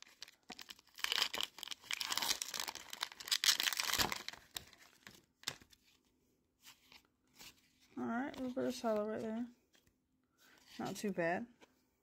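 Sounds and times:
foil wrapper tearing and crinkling: 0:00.0 - 0:05.6.

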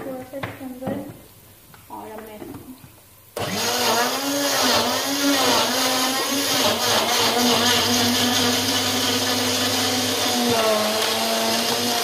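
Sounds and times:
electric blender running: 0:03.4 - 0:12.0.

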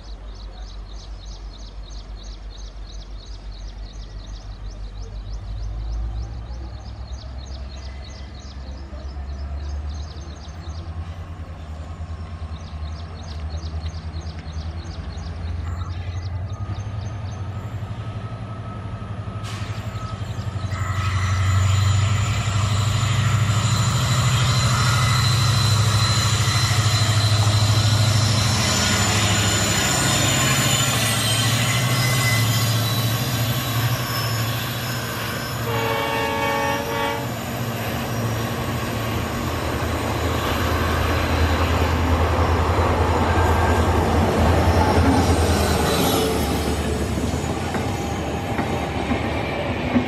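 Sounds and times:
diesel locomotive engine drone: 0:00.0 - 0:50.0
train horn: 0:20.6 - 0:27.8, 0:35.2 - 0:37.5.

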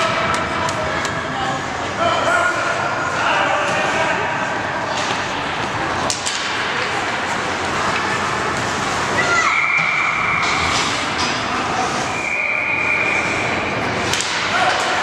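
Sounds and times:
hockey sticks and puck clacking: 0:00.0 - 0:01.2, 0:04.9 - 0:15.0
spectators talking: 0:00.0 - 0:15.0
referee's whistle: 0:09.4 - 0:10.4, 0:12.1 - 0:13.6.

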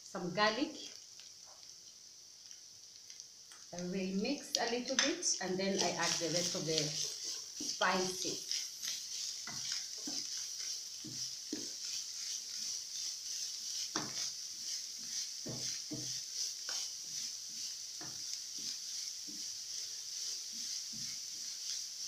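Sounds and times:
frying sizzle: 0:00.0 - 0:22.0
wooden spoon scraping pan: 0:04.8 - 0:22.0.

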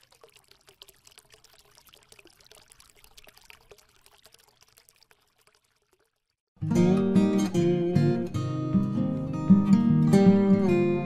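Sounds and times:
faint trickling crackle: 0:00.0 - 0:06.5.

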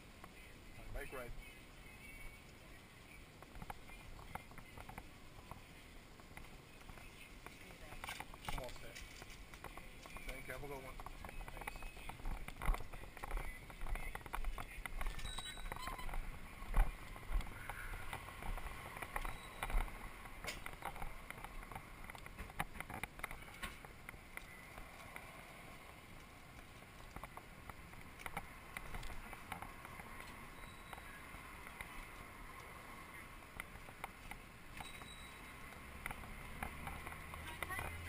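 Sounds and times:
faint background noise: 0:00.0 - 0:38.0
footsteps: 0:06.2 - 0:30.5.

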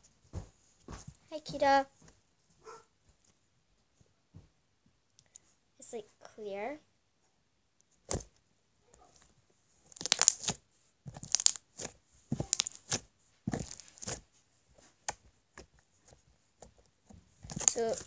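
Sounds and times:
slime crackling when squeezed: 0:09.9 - 0:14.2, 0:17.4 - 0:18.0.

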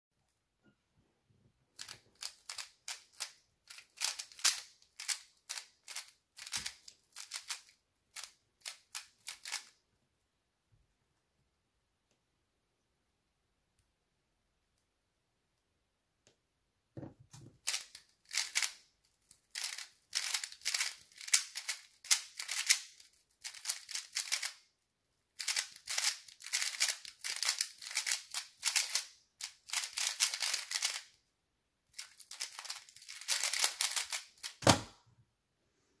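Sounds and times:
puzzle cube clicking turns: 0:01.7 - 0:09.8, 0:17.6 - 0:24.6, 0:25.4 - 0:31.2, 0:31.9 - 0:34.9.

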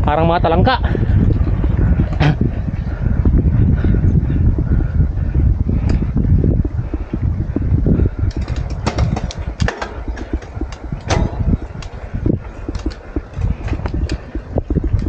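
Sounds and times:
wind rumbling on microphone: 0:00.0 - 0:15.0
bicycle clicks and rattles: 0:05.7 - 0:15.0.

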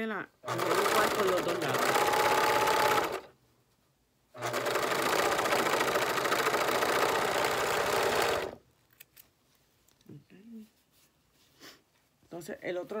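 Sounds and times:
sewing machine stitching: 0:00.4 - 0:03.3, 0:04.4 - 0:08.6.

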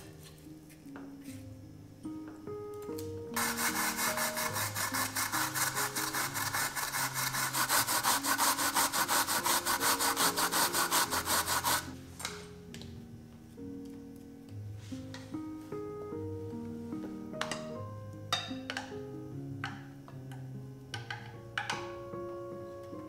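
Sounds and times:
soft guitar music: 0:00.0 - 0:07.3
fast scraping strokes: 0:03.4 - 0:11.9.

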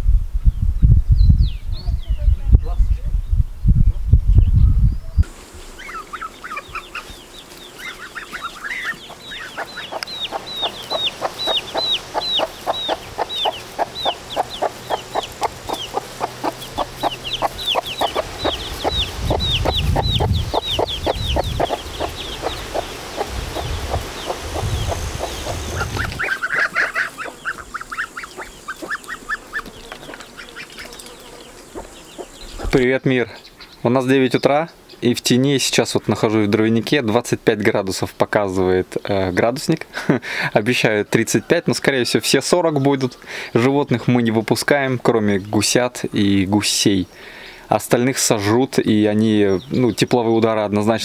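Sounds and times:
chicks peeping: 0:04.4 - 0:36.8
poultry clucking: 0:05.8 - 0:33.8.

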